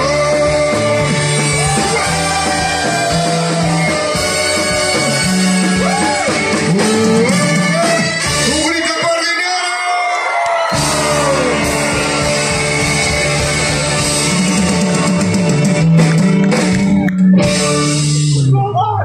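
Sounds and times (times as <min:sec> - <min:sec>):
person singing: 0:00.0 - 0:07.5
electric bass: 0:00.0 - 0:08.8, 0:10.7 - 0:19.0
guitar: 0:00.0 - 0:09.4, 0:10.6 - 0:19.0
percussion: 0:10.7 - 0:18.4.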